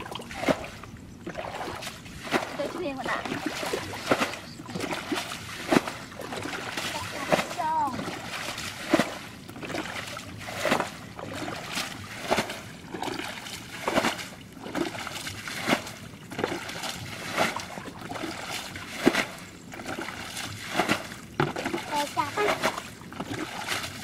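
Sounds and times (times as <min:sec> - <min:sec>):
water sloshing from bucket: 0:00.0 - 0:24.0.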